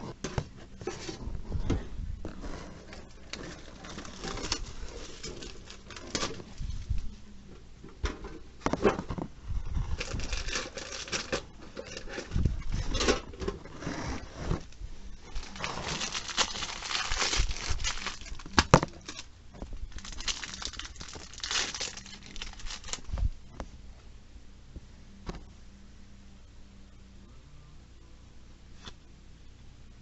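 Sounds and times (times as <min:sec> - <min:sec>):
foil packs crinkling and tearing: 0:03.0 - 0:06.6, 0:09.9 - 0:13.3, 0:14.2 - 0:19.3, 0:19.9 - 0:23.3.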